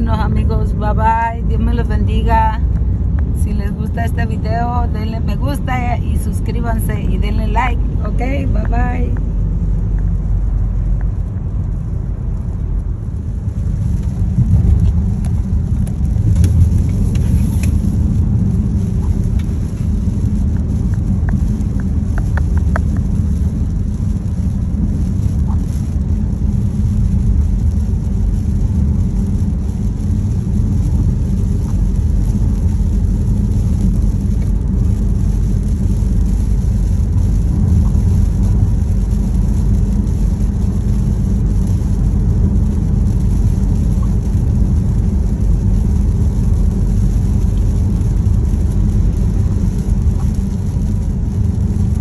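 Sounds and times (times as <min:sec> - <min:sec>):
low rumble: 0:00.0 - 0:52.0
rain hissing: 0:00.0 - 0:52.0
light clicks and taps: 0:20.5 - 0:23.2.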